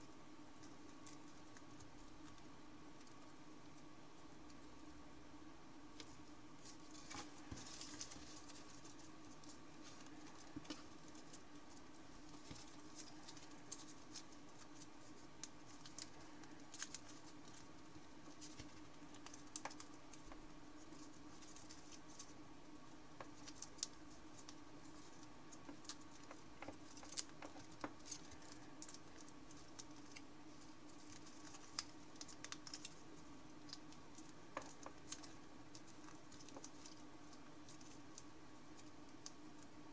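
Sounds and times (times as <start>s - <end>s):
paper rustling and crinkling: 6.0s - 22.4s, 23.2s - 33.0s, 33.6s - 38.2s.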